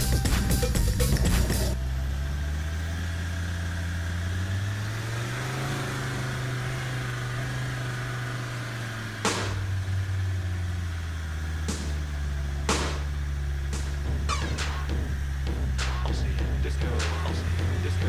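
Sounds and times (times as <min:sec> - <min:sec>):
low motor drone: 0:00.0 - 0:18.0
sharp gravel crunch: 0:09.2 - 0:09.8, 0:11.6 - 0:14.9.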